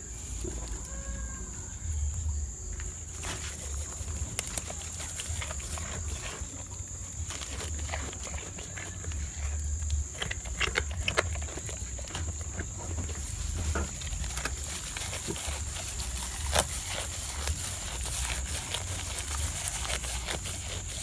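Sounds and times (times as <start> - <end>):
goats chewing leaves: 0.0 - 21.0.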